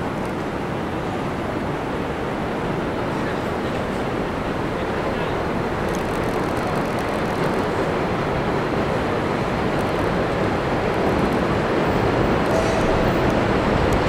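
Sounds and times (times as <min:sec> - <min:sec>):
subway train running on steel: 0:00.0 - 0:14.0.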